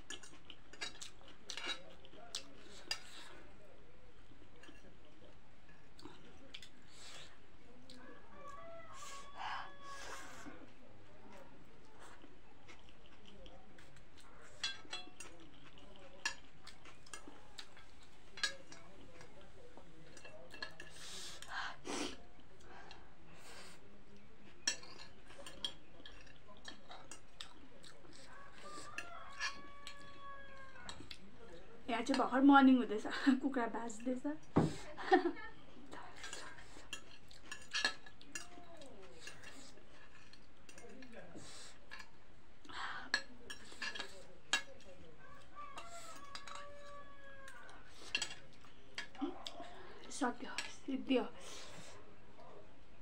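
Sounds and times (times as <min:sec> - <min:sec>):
rooster crowing: 0:08.0 - 0:10.5, 0:28.3 - 0:31.0, 0:45.2 - 0:48.1
cutlery clinking on a plate: 0:14.6 - 0:19.3, 0:20.1 - 0:21.2, 0:24.6 - 0:30.3, 0:36.2 - 0:42.1, 0:43.1 - 0:44.9, 0:45.7 - 0:47.1, 0:47.9 - 0:49.2.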